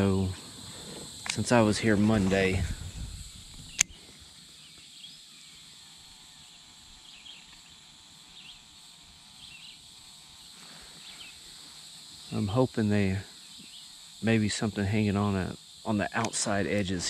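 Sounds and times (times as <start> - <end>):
faint high insect drone: 0.0 - 17.0
sharp click: 3.7 - 4.0.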